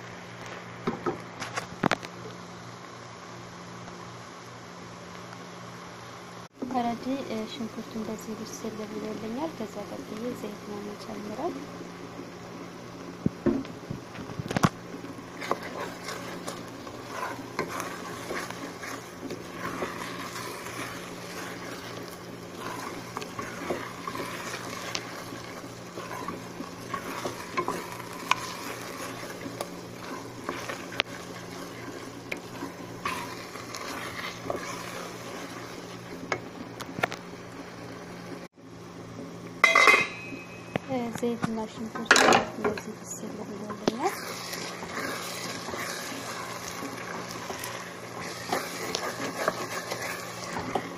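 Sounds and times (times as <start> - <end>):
onions sizzling: 6.5 - 41.8, 42.5 - 50.9
wooden spoon scraping metal pot: 14.5 - 36.0, 43.6 - 50.9.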